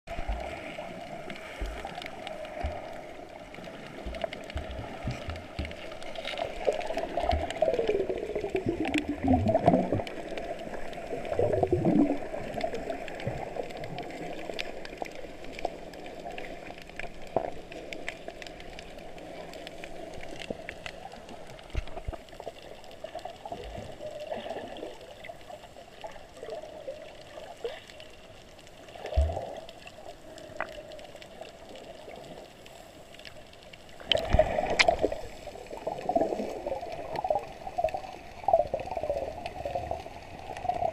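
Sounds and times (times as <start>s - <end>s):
muffled underwater gurgling: 0.1s - 16.5s
water swirling surges: 0.1s - 17.8s
faint crackles: 0.1s - 40.9s.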